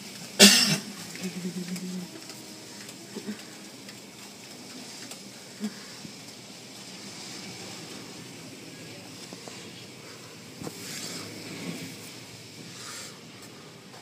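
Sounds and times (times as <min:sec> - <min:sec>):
water spray hissing: 0:09.3 - 0:13.8.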